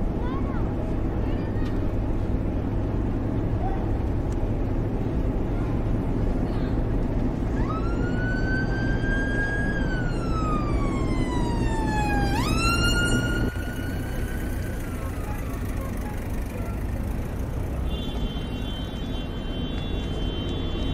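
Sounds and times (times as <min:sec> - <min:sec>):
city traffic rumble: 0:00.0 - 0:20.9
wailing siren: 0:07.4 - 0:16.9.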